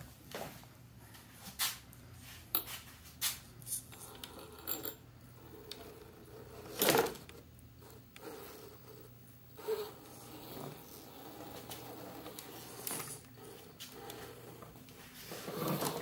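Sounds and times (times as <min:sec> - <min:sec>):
small motor and gears whirring: 0:03.7 - 0:16.0.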